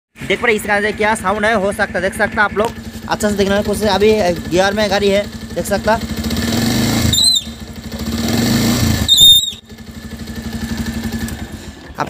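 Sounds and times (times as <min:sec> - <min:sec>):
motorcycle engine revving: 0:00.2 - 0:12.0
high-pitched brake squeal: 0:07.1 - 0:07.6, 0:09.0 - 0:09.6.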